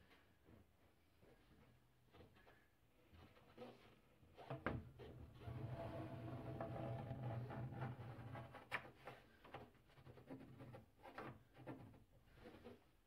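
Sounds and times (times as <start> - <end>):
pencil scratching on wood panel: 5.9 - 12.9.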